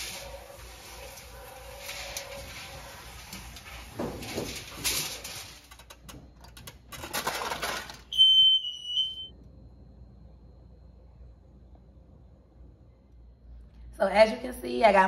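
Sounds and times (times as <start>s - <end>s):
aluminum foil crinkling: 0.0s - 8.1s
appliance electronic beep: 8.1s - 9.4s.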